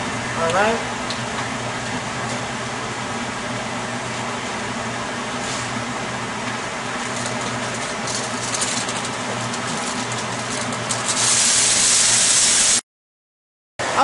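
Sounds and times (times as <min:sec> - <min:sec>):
kitchen wrap rustling: 0:07.0 - 0:11.2
wrap crinkling over foil pan: 0:07.1 - 0:11.3.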